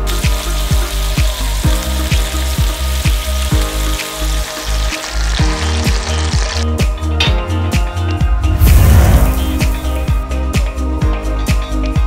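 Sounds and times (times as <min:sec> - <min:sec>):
burger patties sizzling in pan: 0:00.0 - 0:06.6
background music with beat: 0:00.0 - 0:12.0.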